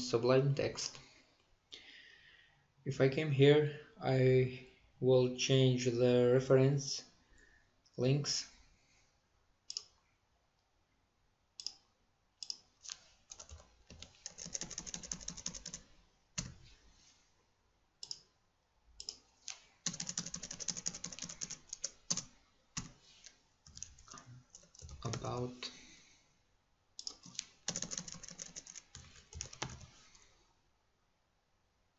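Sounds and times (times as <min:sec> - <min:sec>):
computer keyboard typing: 0:13.3 - 0:16.6, 0:19.8 - 0:23.0, 0:23.6 - 0:25.4, 0:27.0 - 0:29.9.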